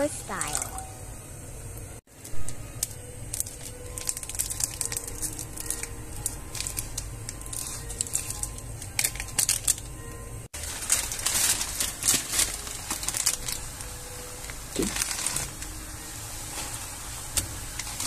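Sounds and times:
plastic sachet crinkling and tearing: 2.2s - 10.0s, 10.6s - 15.8s.

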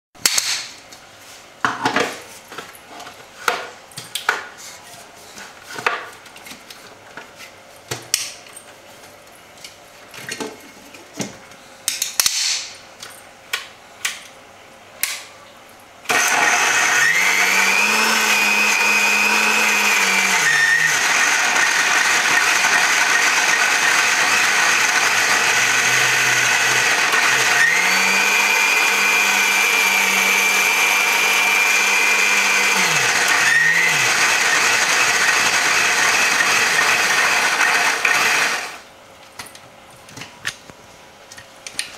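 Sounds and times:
mixer grinder motor running: 16.1s - 38.8s.

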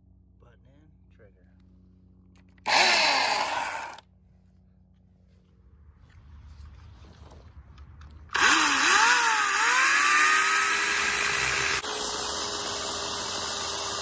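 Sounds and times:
electric chainsaw cutting wood: 2.6s - 4.0s, 8.3s - 14.0s.

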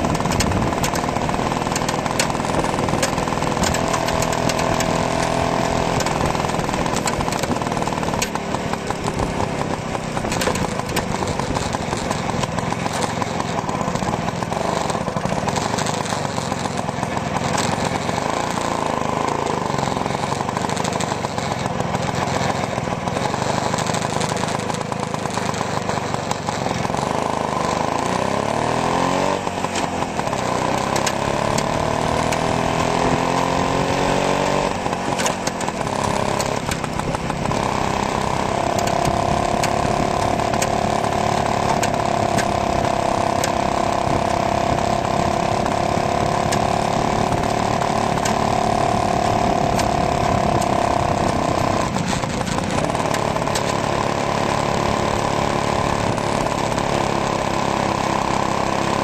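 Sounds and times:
two-stroke engine running: 0.0s - 59.0s.

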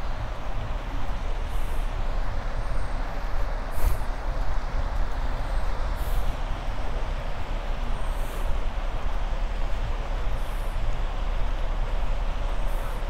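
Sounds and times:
low city rumble: 0.0s - 13.0s
short high hiss: 3.7s - 4.1s.

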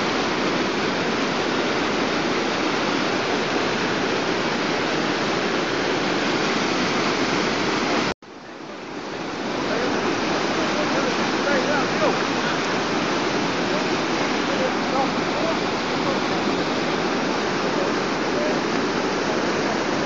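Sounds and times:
fast churning water rushing: 0.0s - 20.0s.

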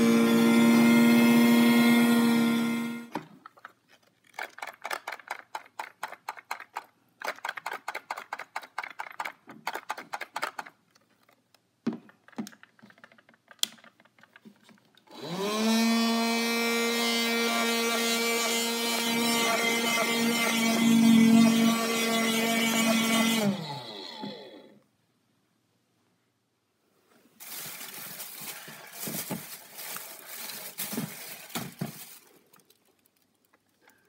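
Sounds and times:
handheld vacuum motor humming: 0.0s - 3.1s, 15.1s - 24.7s.

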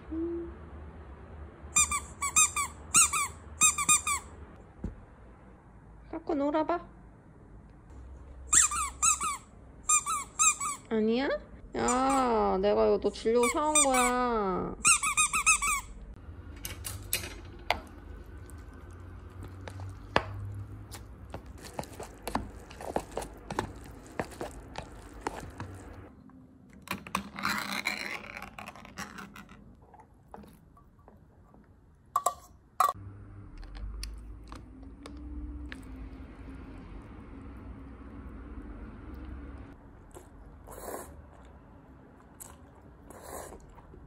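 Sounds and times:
squeaky dog toy: 1.8s - 4.4s, 8.5s - 10.9s, 13.4s - 14.2s, 14.8s - 16.0s.

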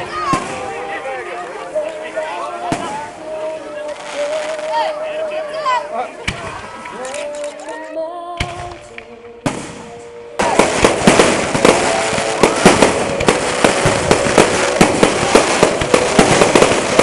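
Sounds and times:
fireworks bangs and crackles: 0.0s - 5.0s, 8.4s - 17.0s.

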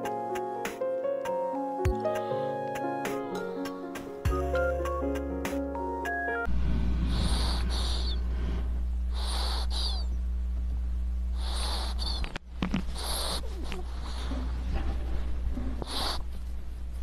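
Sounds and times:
steady low hum: 6.4s - 17.0s
ferret snoring: 7.0s - 8.3s, 9.1s - 10.2s, 11.3s - 14.8s, 15.5s - 16.3s
squeaky chirps: 7.2s - 8.2s, 9.2s - 10.2s, 11.4s - 12.4s.

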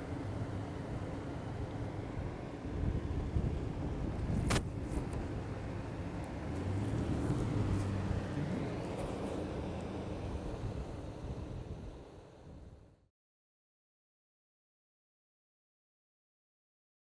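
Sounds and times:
cars driving by: 4.1s - 12.0s.

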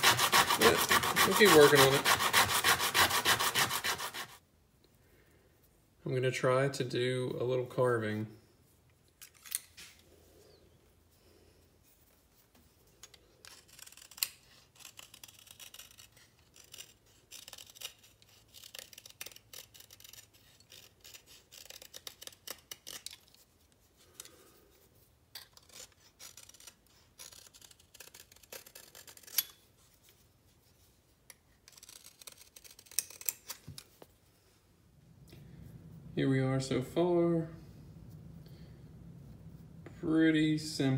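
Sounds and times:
knife blade shaving wood: 0.0s - 4.4s, 13.5s - 23.2s, 25.5s - 29.6s.

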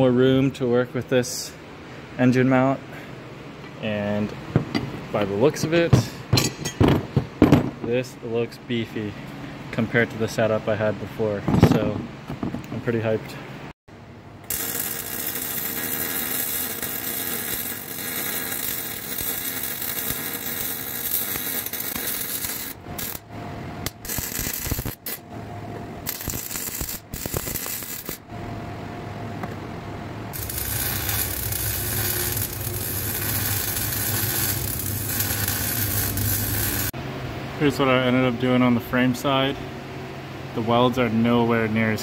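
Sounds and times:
arc welding crackle: 14.4s - 25.2s, 26.0s - 28.3s, 30.3s - 37.0s.

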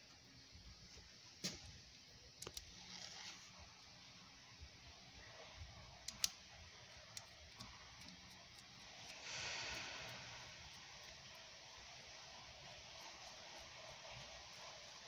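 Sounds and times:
soft rustle: 2.7s - 3.8s.

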